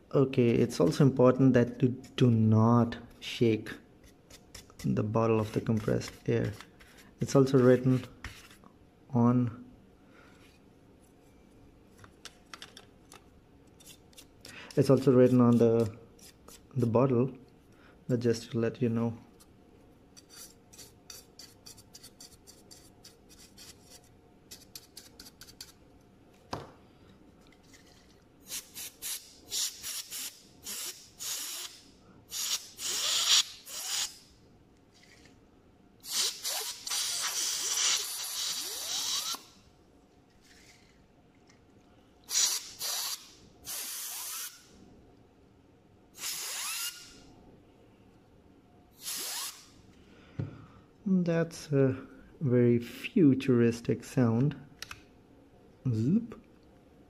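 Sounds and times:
compressed air hissing: 0:28.4 - 0:34.2, 0:36.0 - 0:39.4, 0:42.3 - 0:44.7, 0:46.2 - 0:47.1, 0:49.0 - 0:49.7.

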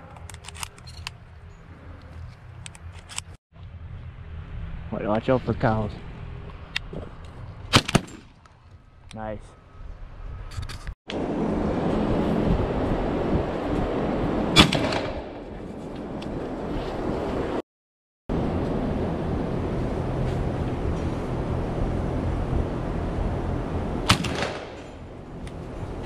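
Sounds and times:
shotgun shots: 0:14.6 - 0:15.4, 0:24.1 - 0:24.8.

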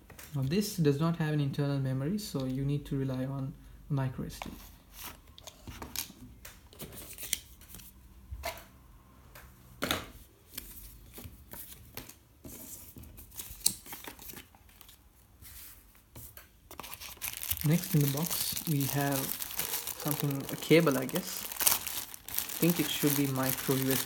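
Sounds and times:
paper rustling: 0:13.3 - 0:24.0.

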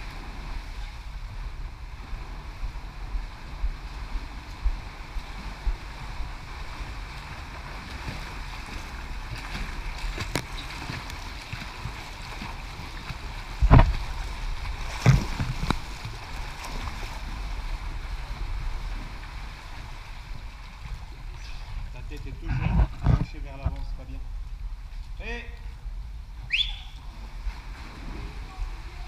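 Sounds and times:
steady rushing noise: 0:00.0 - 0:29.0
water splashing from swimming: 0:02.0 - 0:21.9, 0:26.8 - 0:29.0
sharp splashes or knocks: 0:07.9 - 0:17.1.

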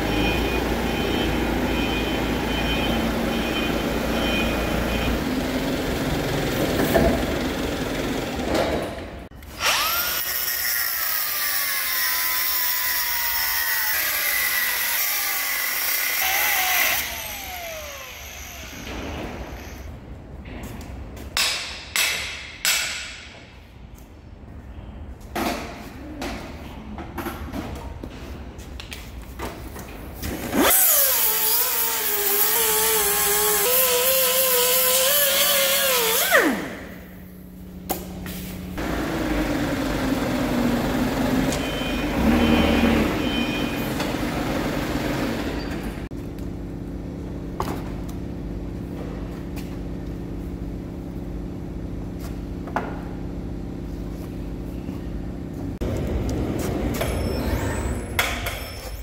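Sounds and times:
angle grinder whining: 0:09.4 - 0:19.9, 0:30.6 - 0:37.0.

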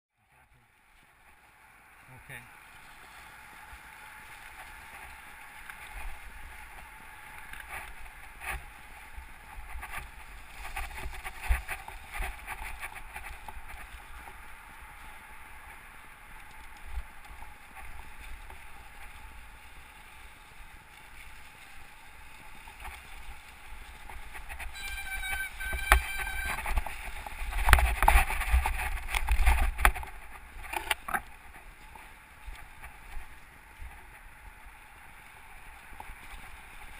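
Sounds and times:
bike tyres crunching through leaves: 0:00.2 - 0:36.9
bike knocking and rattling: 0:04.5 - 0:14.6, 0:21.0 - 0:34.3.

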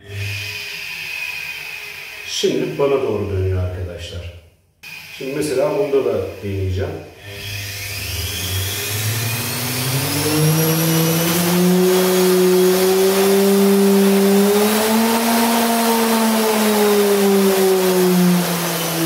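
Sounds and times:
electric motor hum rising: 0:04.8 - 0:19.0.

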